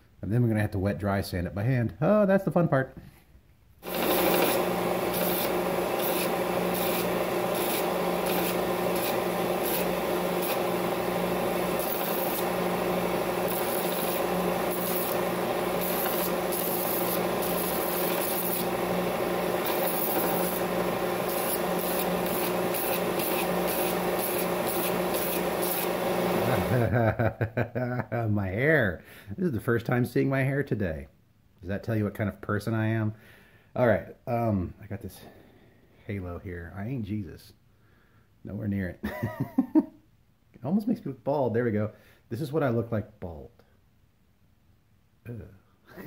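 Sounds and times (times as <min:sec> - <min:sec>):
belt sander motor hum: 0:03.8 - 0:26.9
grinding on sander belt: 0:03.8 - 0:26.9.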